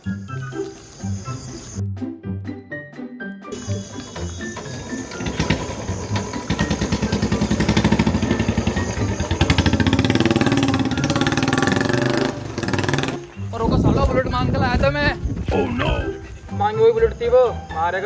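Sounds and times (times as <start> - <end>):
motorcycle engine riding off: 3.5 - 13.5.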